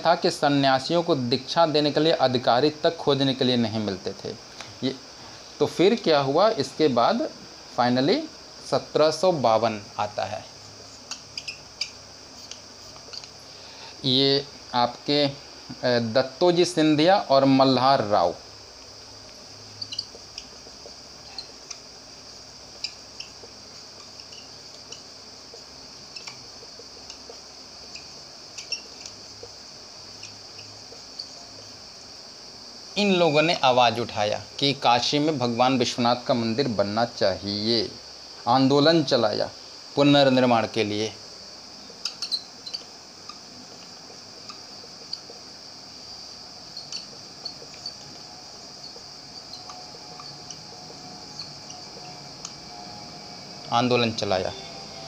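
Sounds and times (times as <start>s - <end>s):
steady hiss: 0.0s - 55.0s
marker squeaking on whiteboard: 10.6s - 13.5s, 19.6s - 22.0s, 22.7s - 31.8s, 41.9s - 45.4s, 46.6s - 53.2s.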